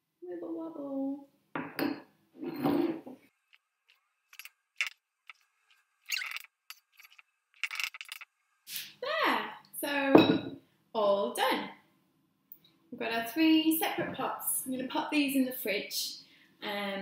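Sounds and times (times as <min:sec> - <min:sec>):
spoon scraping and clinking bowl: 0:04.3 - 0:05.4, 0:06.1 - 0:08.2.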